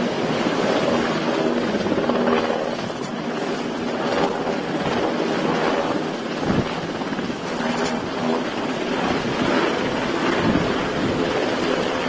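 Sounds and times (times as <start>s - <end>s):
helicopter rotor and engines: 0.0s - 12.0s
wind on microphone: 0.0s - 12.0s
rush of ship's wake: 8.9s - 12.0s.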